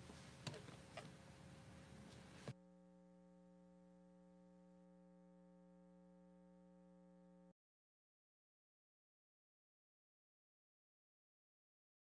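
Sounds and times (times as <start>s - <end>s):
faint steady buzzing tone: 0.0s - 7.6s.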